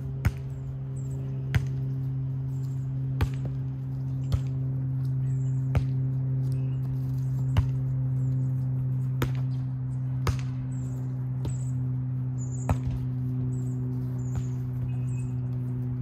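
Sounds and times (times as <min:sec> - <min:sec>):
steady low hum: 0:00.0 - 0:16.0
volleyball being struck: 0:10.2 - 0:10.7.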